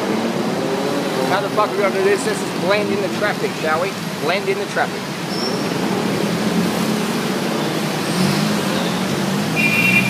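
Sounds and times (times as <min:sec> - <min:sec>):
car and motorbike engines: 0:00.0 - 0:10.0
road noise: 0:00.0 - 0:10.0.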